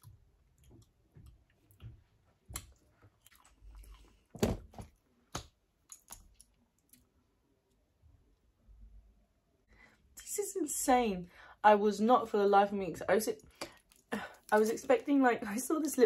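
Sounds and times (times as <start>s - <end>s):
person chewing crunchy snack: 2.6s - 4.3s.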